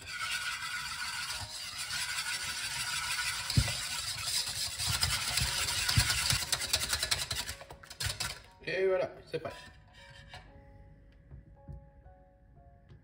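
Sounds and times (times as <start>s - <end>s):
wire whisk beating in a bowl: 0.1s - 8.5s.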